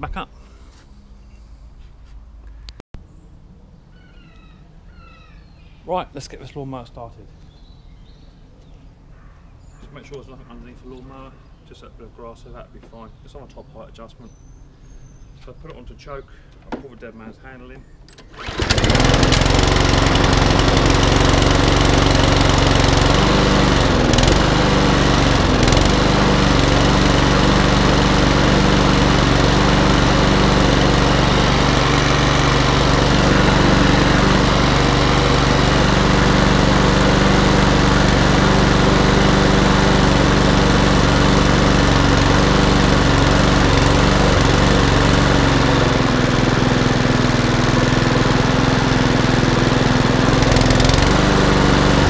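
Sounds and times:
lawn mower engine running: 18.1 - 52.0.

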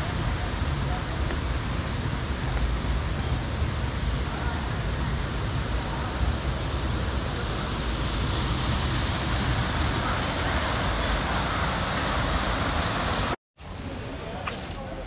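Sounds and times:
small waterfall cascade: 0.0 - 13.4
stream water rushing over rocks: 7.3 - 13.4.

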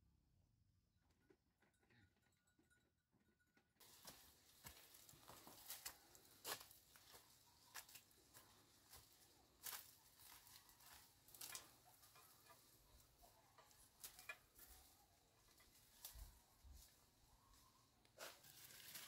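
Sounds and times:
footsteps on dry dirt trail: 3.8 - 12.1.

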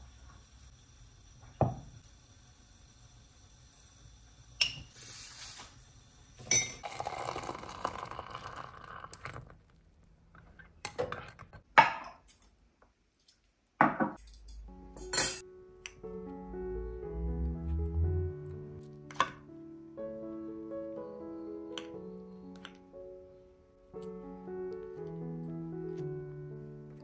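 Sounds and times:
metal spoon clinking on mug: 6.4 - 7.0, 14.2 - 15.4
liquid pouring: 6.5 - 9.8.

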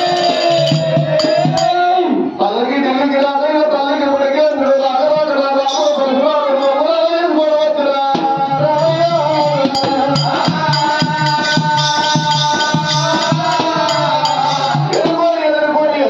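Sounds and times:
barrel drum beat: 0.0 - 1.8, 8.1 - 15.3
jingling rattle percussion: 0.0 - 1.8, 5.4 - 7.4, 8.1 - 15.2.

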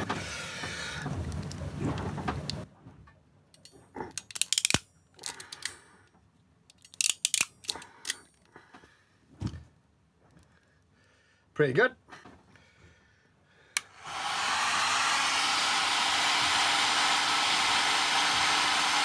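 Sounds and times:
ratchet crimping tool clicking: 3.6 - 5.8, 6.7 - 8.2.

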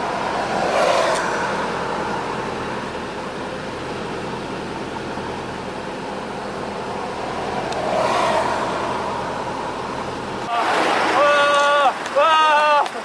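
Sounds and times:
bicycle tyres on asphalt: 6.4 - 13.0
wind rushing: 7.2 - 11.2.

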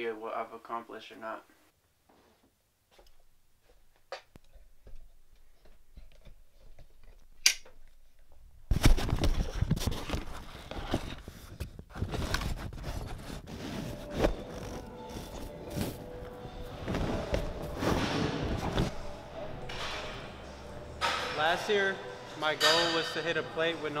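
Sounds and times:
rustling and scraping: 5.4 - 23.5.

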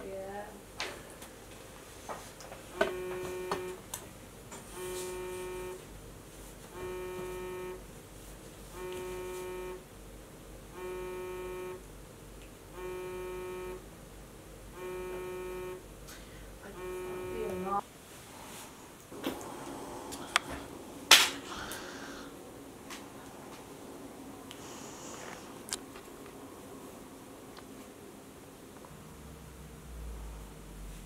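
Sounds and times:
phone buzzing tone: 2.7 - 3.8, 4.7 - 5.8, 6.7 - 7.8, 8.7 - 9.9, 10.7 - 11.9, 12.7 - 13.9, 14.7 - 15.9, 16.6 - 17.8.

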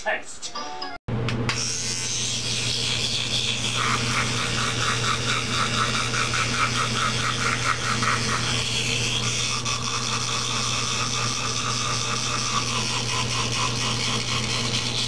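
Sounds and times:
electric toothbrush buzzing: 1.5 - 15.0
quick rhythmic rasp: 2.1 - 15.0.

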